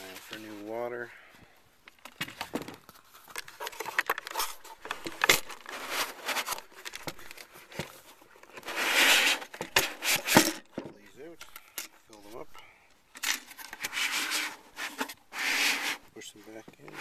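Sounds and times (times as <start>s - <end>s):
scraping: 2.4s - 12.4s.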